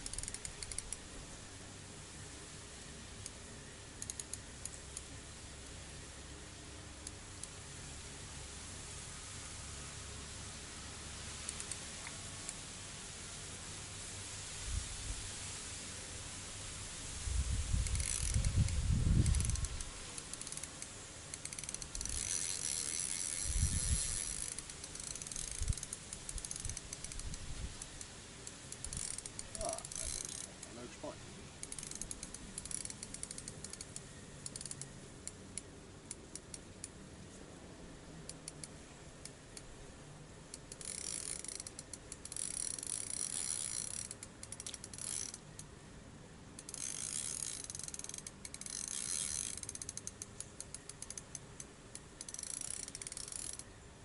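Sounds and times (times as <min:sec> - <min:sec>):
fishing reel clicking whirr: 0:00.0 - 0:01.0, 0:03.2 - 0:05.2, 0:11.4 - 0:12.6, 0:17.7 - 0:30.7, 0:31.6 - 0:37.0, 0:38.3 - 0:39.6, 0:40.5 - 0:45.7, 0:46.6 - 0:53.7.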